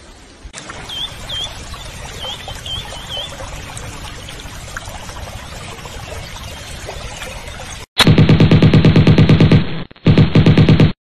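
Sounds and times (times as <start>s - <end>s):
water trickling: 0.0s - 7.9s.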